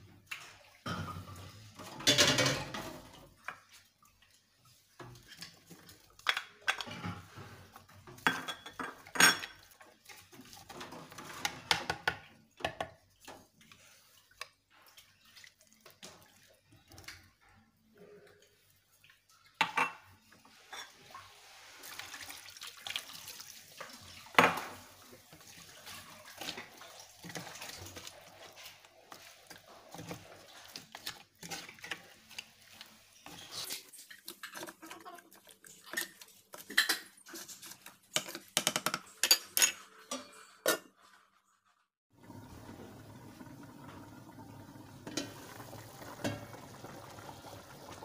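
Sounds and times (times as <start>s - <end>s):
liquid pouring into metal pot: 42.1s - 48.0s.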